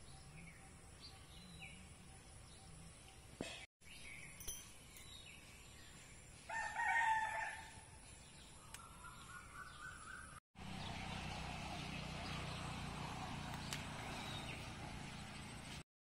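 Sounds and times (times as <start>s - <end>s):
rooster crowing: 6.5s - 7.8s.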